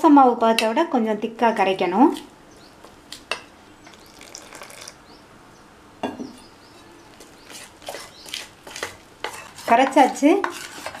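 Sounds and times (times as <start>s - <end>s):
spoon stirring wet batter: 6.7s - 11.0s.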